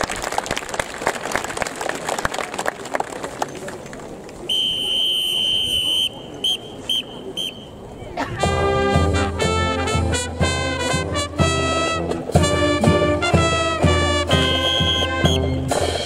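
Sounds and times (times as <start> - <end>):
whistle blasts: 4.5 - 7.8, 14.3 - 15.8
brass band with saxophone: 4.5 - 16.0.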